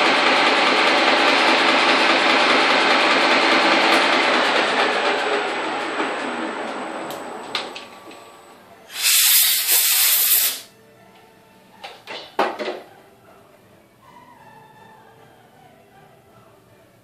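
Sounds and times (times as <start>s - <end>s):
faint music: 4.6s - 17.0s
pressurised hiss: 8.9s - 10.7s.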